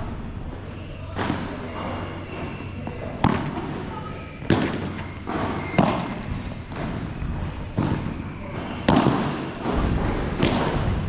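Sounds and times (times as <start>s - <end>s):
ball bouncing on court: 3.1s - 3.8s, 4.4s - 11.0s
ball struck by rackets: 3.2s - 3.8s, 4.4s - 11.0s.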